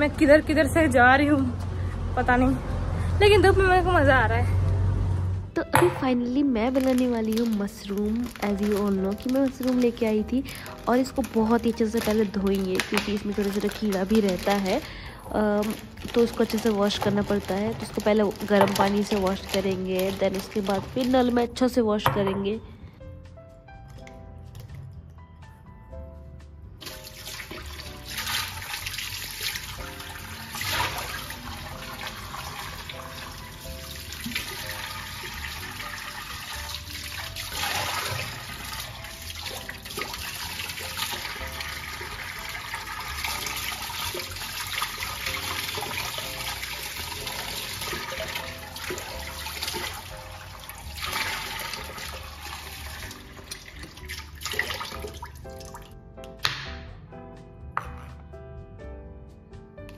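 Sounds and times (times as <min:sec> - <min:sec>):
tap water splashing into bowl: 0:12.0 - 0:14.8, 0:18.3 - 0:21.1, 0:26.8 - 0:50.2.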